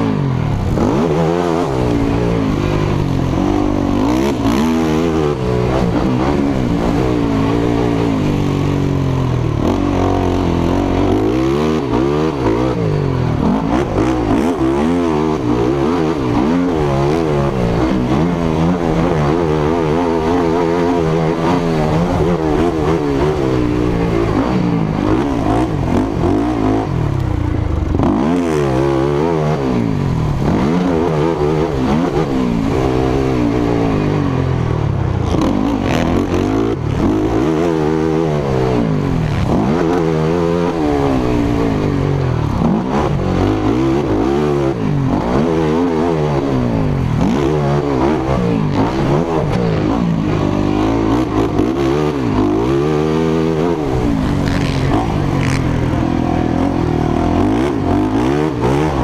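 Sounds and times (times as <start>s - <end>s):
quad engine revving: 0.0s - 59.0s
rush of wind noise: 0.0s - 59.0s.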